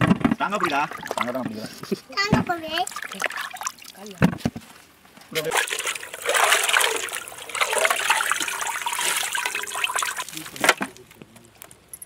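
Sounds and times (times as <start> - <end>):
water pouring into a vessel: 0.4 - 1.7, 2.8 - 4.0, 5.4 - 11.1.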